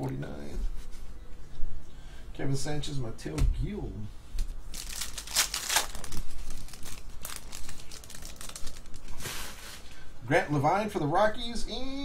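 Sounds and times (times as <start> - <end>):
foil wrapper crinkling: 4.4 - 9.6.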